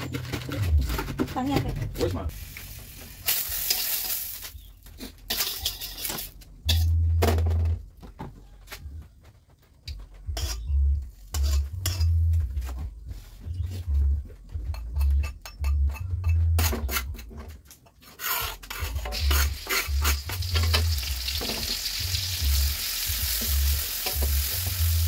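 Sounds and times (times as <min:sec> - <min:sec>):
metal cookware clattering: 0:03.3 - 0:07.8, 0:11.3 - 0:12.2, 0:14.7 - 0:21.9
dull low thumps: 0:10.0 - 0:16.6.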